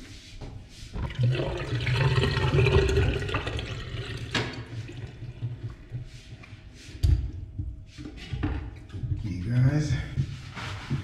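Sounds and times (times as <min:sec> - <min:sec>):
water splashing in a metal sink: 0:01.0 - 0:06.0
water dripping: 0:01.0 - 0:06.1.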